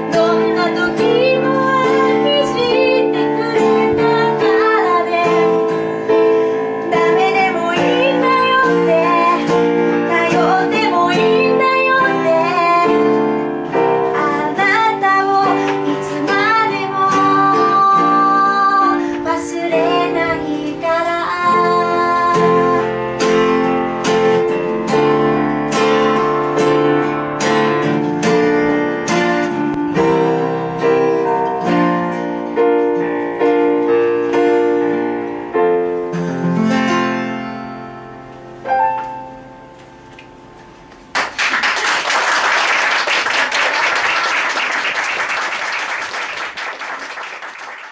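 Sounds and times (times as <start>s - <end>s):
woman singing: 0.0s - 5.8s, 6.8s - 23.1s
acoustic guitar strumming: 0.0s - 41.2s
keyboard playing chords: 19.8s - 41.1s.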